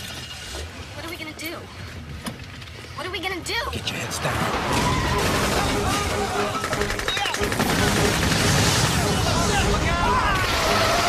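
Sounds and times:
dramatic music score: 4.3s - 11.0s
rapid gunfire: 5.2s - 11.0s.

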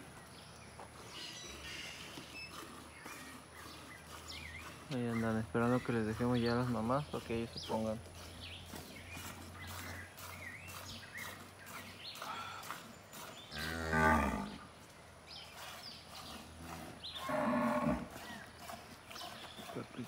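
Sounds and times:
cattle mooing: 13.5s - 14.6s, 16.5s - 18.2s.

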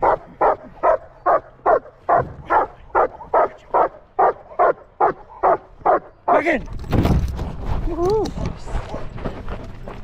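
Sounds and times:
dog barking: 0.0s - 6.1s.

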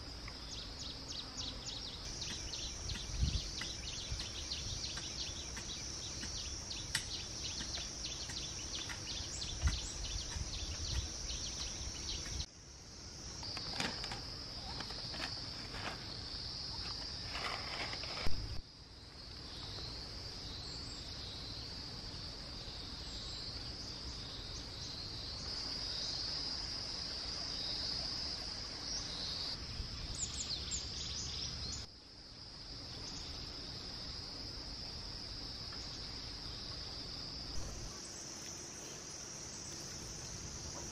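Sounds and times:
insects chorus: 0.0s - 40.9s
bird chirps: 0.5s - 12.5s
hoe striking soil: 2.2s - 12.4s, 16.8s - 18.5s.

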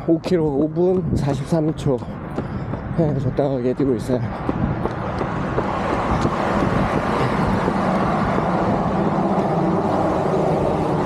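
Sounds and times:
road traffic passing: 0.0s - 11.0s.

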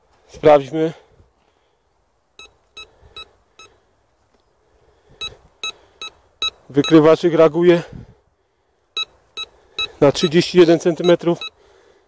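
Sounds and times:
metal detector short beeps: 2.4s - 3.7s, 5.2s - 7.0s, 9.0s - 11.6s.

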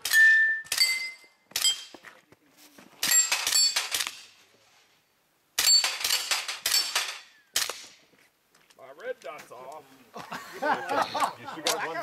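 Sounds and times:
steel targets ringing: 0.0s - 1.9s
gunshots: 3.0s - 4.4s, 5.6s - 8.0s.

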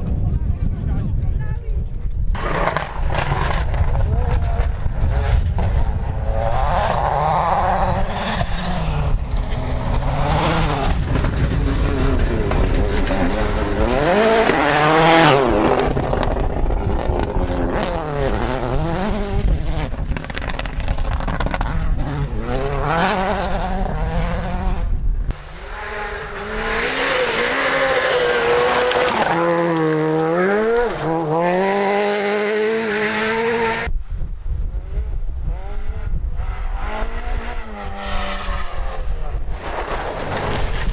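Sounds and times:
rally car engines revving: 2.3s - 33.9s, 34.6s - 40.9s
tyres on loose gravel: 8.9s - 17.8s, 25.3s - 31.8s, 39.4s - 40.9s.

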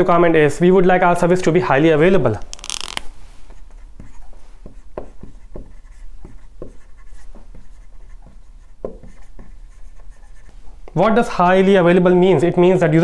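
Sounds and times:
marker writing on whiteboard: 2.4s - 11.4s.

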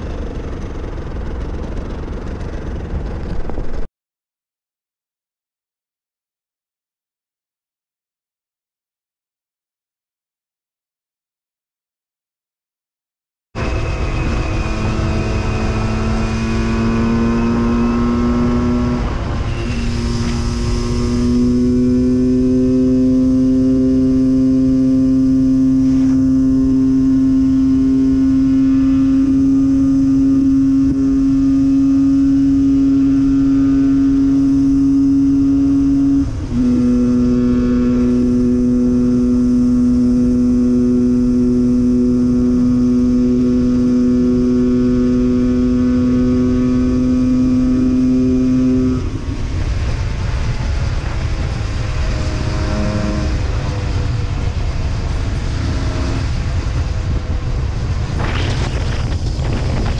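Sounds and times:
two-stroke engine running: 0.0s - 3.9s.

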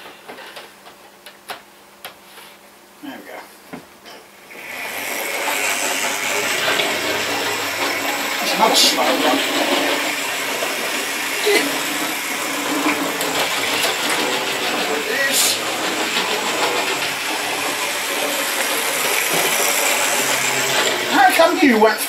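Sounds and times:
model train motor whirr: 4.5s - 21.6s
wheels rattling on rails: 4.6s - 21.6s.

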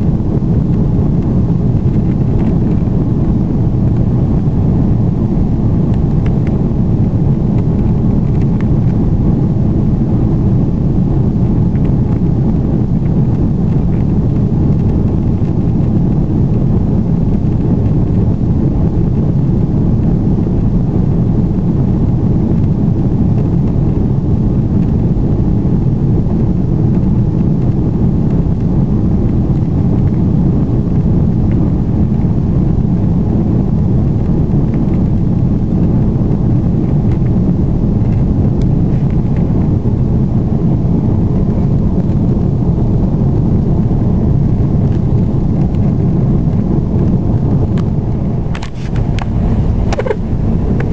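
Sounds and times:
airplane cabin engine rumble: 0.0s - 50.9s.

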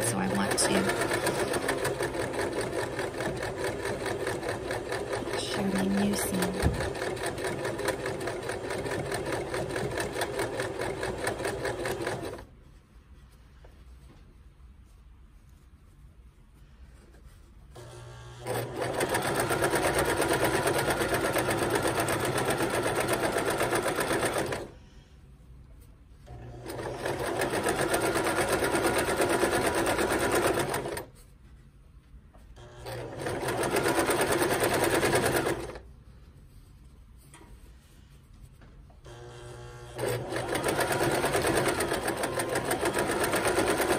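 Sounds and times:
sewing machine stitching: 0.0s - 12.5s, 17.8s - 24.8s, 26.3s - 31.1s, 32.6s - 35.8s, 39.1s - 43.9s.

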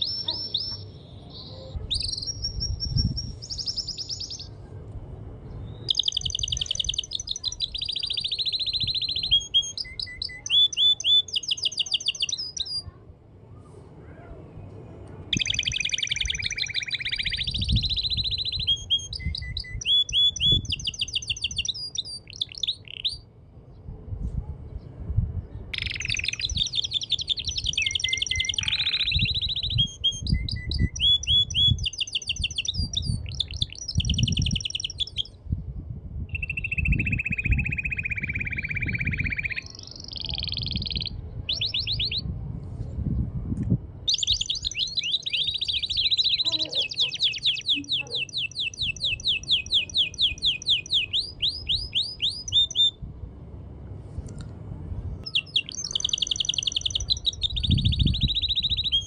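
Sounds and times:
canary singing trills: 0.0s - 4.6s, 5.5s - 12.9s, 15.3s - 23.3s, 25.7s - 35.4s, 36.3s - 42.3s, 44.1s - 53.0s, 55.2s - 59.0s.

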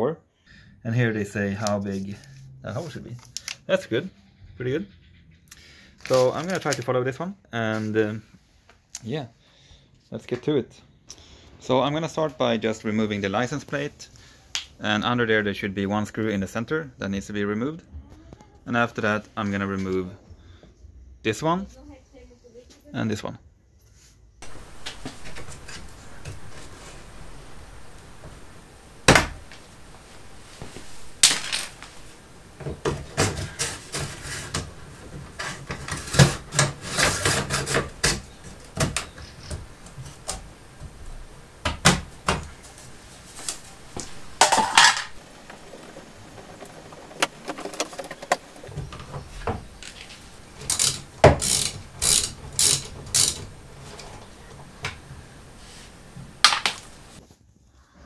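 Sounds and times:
hand tools and screws clicking: 43.4s - 54.3s.

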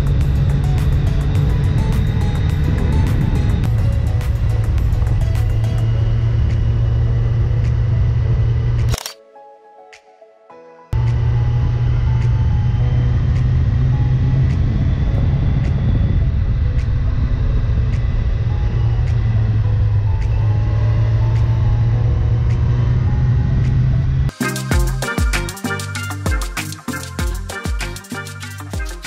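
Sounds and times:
motorcycle engine running: 0.0s - 8.9s
wind and road noise: 0.0s - 9.1s, 11.0s - 24.3s.

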